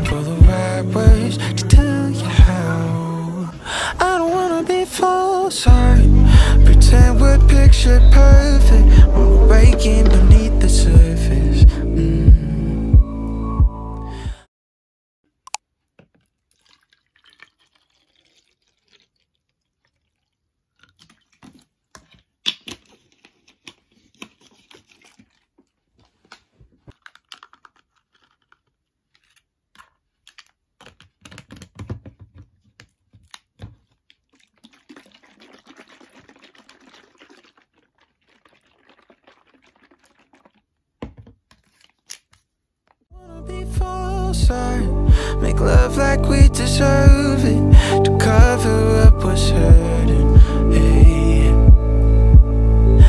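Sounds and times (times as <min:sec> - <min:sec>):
liquid sloshing in bottle: 0:15.8 - 0:42.5
plastic bottle clicks and knocks: 0:30.4 - 0:34.0, 0:41.0 - 0:41.6.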